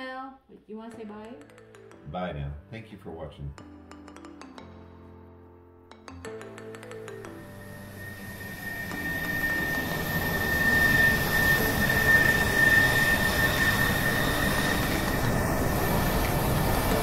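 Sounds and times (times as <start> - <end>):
mechanical rushing with high whine: 7.4 - 17.0.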